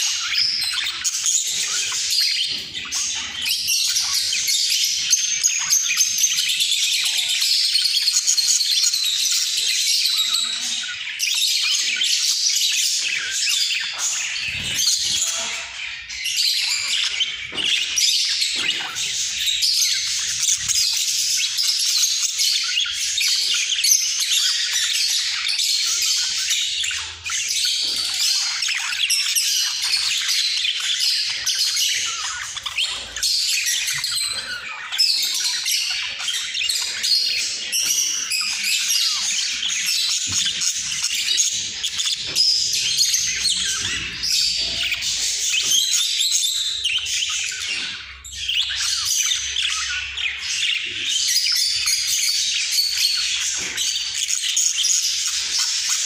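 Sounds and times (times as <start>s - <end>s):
budgerigars warbling and chattering: 0.0s - 56.0s.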